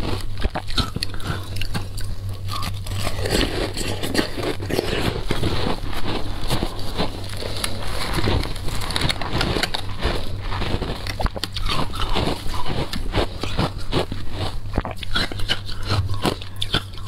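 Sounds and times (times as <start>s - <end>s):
chewing crunching shaved ice: 0.0s - 17.0s
wet mouth sounds: 0.0s - 17.0s.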